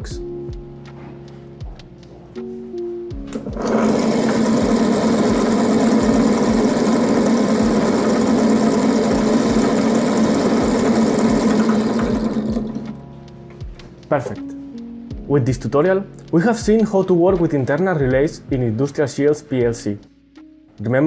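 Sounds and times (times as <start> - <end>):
drill motor humming and whining: 3.4 - 13.0.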